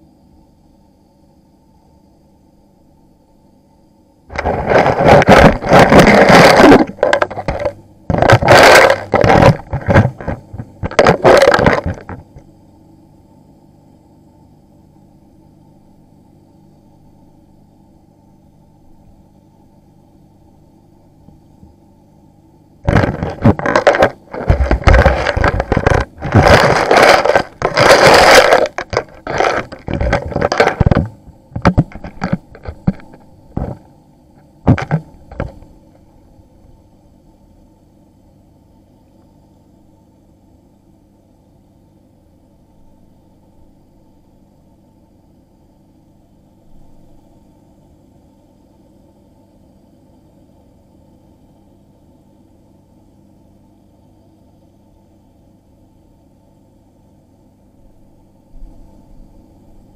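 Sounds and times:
steady low hum: 0.0 - 59.9
scraping and crackling: 4.3 - 12.4, 22.9 - 33.9, 34.7 - 35.7.

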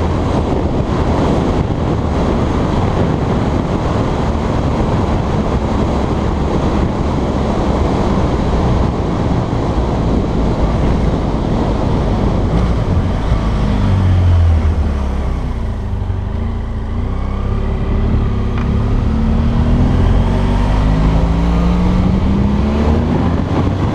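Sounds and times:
motorcycle engine: 0.0 - 23.9
wind noise on microphone: 0.0 - 23.9.

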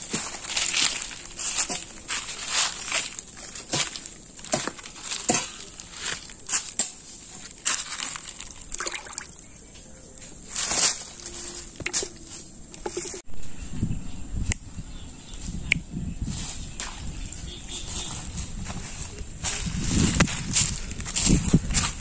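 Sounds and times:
fish flapping on dry leaves: 0.0 - 9.4
splashing in bucket of water: 7.7 - 9.5.

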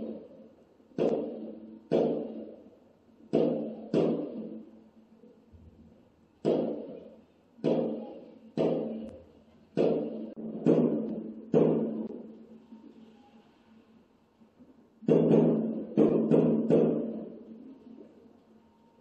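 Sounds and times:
firework shells booming: 1.0 - 2.6.

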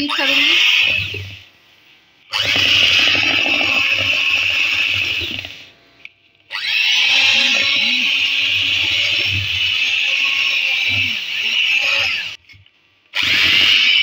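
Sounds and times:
electric hand mixer beating batter: 2.3 - 5.7, 6.6 - 12.4, 13.2 - 14.0.

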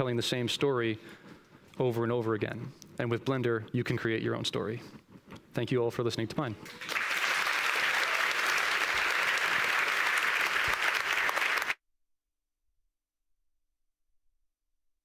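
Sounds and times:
audience applauding: 6.6 - 11.8.

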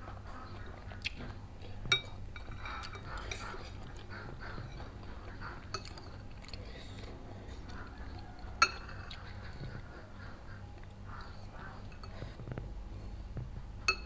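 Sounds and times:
eating sounds: 0.0 - 13.2
cutlery clinking on ceramic bowls: 1.9 - 4.9, 5.7 - 6.2, 8.6 - 9.7, 11.8 - 12.2.

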